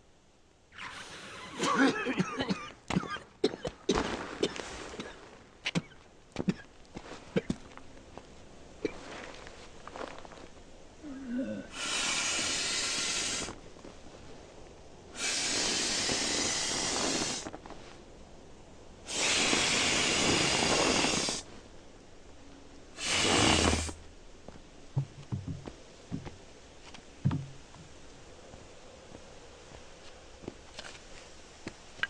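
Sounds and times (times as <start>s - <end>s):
person breathing loudly: 11.0s - 13.6s, 15.2s - 17.5s.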